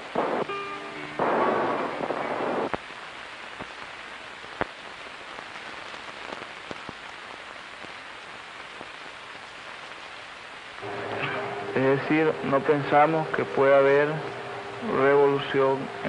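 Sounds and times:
faint clicks and pops: 0.0 - 0.6, 1.2 - 10.1
film soundtrack hiss: 0.0 - 16.0.

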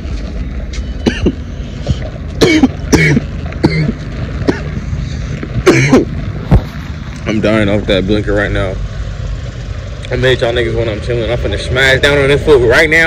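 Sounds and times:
man coughing hard: 1.0 - 1.4, 2.4 - 4.8, 5.6 - 6.2.

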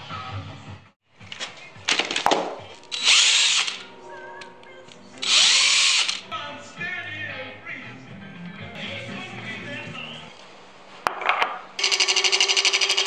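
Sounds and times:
background music: 0.0 - 10.4
power drill whining: 2.9 - 3.9, 5.2 - 6.2, 11.8 - 13.0.

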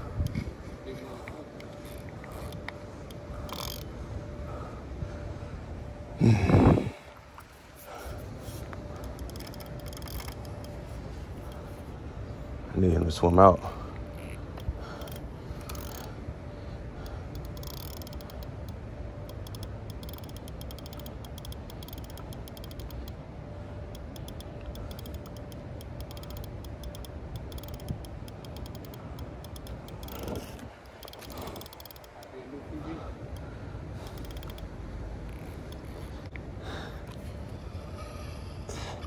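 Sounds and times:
spinning reel clicking: 1.8 - 3.9, 9.0 - 10.8, 14.1 - 16.1, 17.0 - 23.2, 23.9 - 33.4, 34.0 - 34.7.

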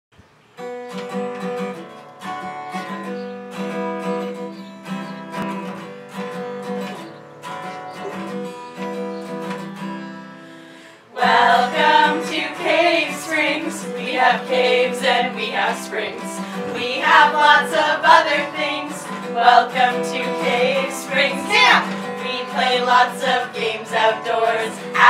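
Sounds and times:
acoustic guitar strumming: 0.4 - 25.0
women singing together: 11.1 - 25.0.

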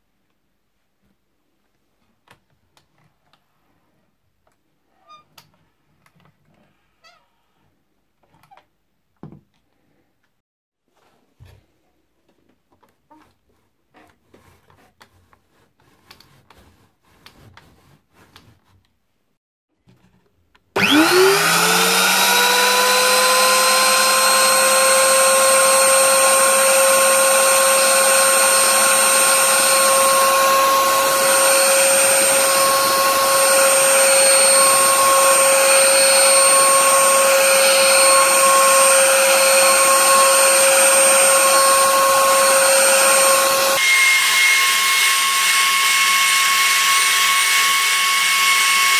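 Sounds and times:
router whining: 20.8 - 48.9.

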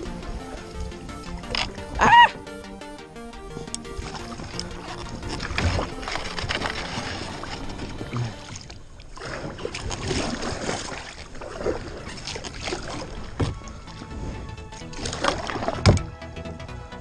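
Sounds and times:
water sloshing around hull: 0.0 - 2.5, 3.2 - 16.3
kayak paddle splashing: 3.3 - 16.1.

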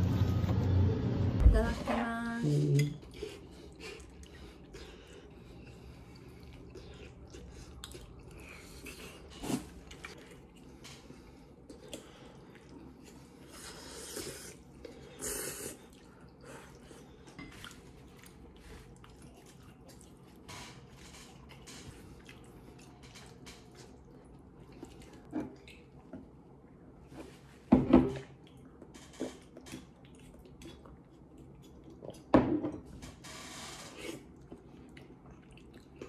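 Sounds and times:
soft wet eating sounds: 2.4 - 33.0, 33.9 - 36.0.

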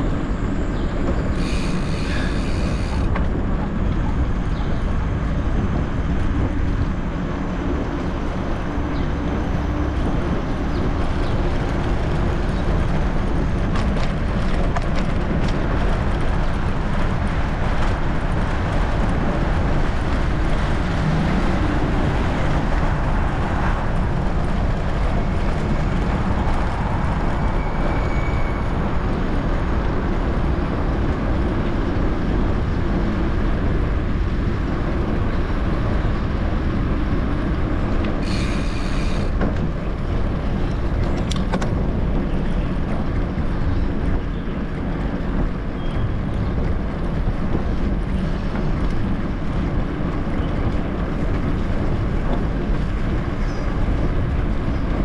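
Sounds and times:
vehicle rumble on rough ground: 0.0 - 55.0.

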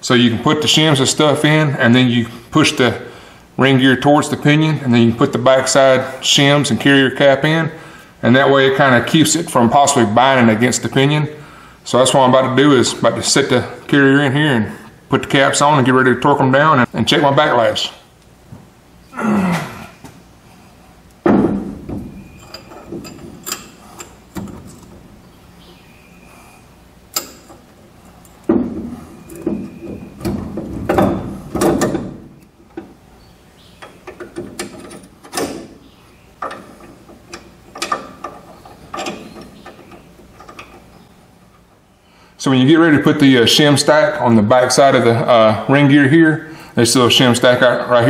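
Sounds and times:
metal clunks and clinks: 21.3 - 25.0, 36.4 - 40.9.

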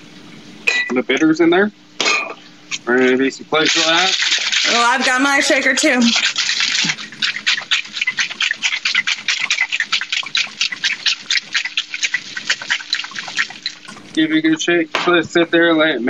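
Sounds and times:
ice rattling in cocktail shaker: 3.6 - 14.2.

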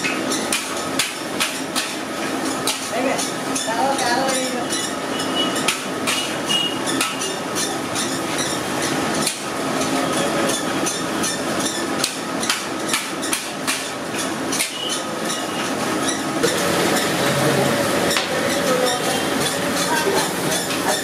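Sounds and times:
steady frying hiss: 16.4 - 21.0.

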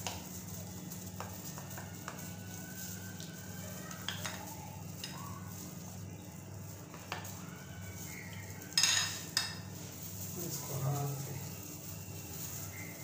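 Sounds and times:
utensil beating mixture in bowl: 0.0 - 13.0
utensil clinking on bowl: 3.9 - 5.2, 8.0 - 9.7.

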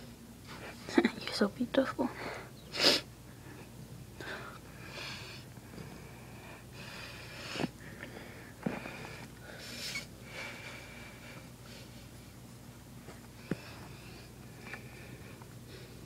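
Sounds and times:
wheezy breaths: 2.2 - 12.2, 13.3 - 16.0.

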